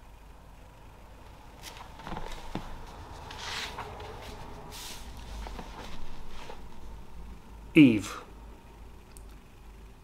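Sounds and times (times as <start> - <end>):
paper pages rustling: 1.6 - 7.0.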